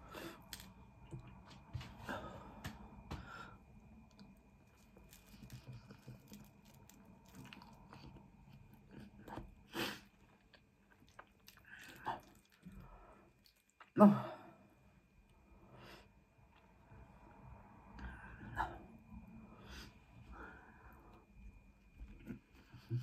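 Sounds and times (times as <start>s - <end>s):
soft crunches: 4.1s - 12.8s
chewing and biting food: 4.1s - 13.9s.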